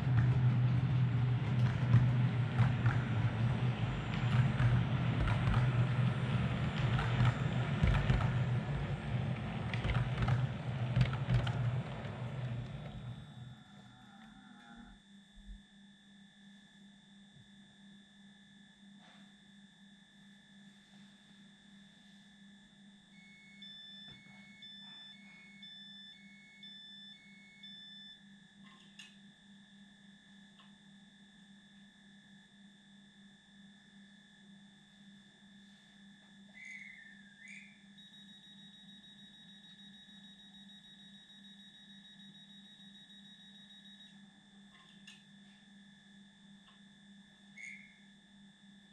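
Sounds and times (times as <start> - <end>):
electronic humming tones: 0.0 - 48.9
gliding chirp: 36.6 - 37.9.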